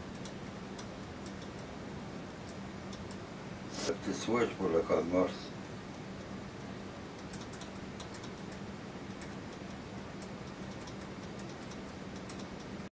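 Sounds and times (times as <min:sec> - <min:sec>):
steady low hum: 0:00.0 - 0:12.9.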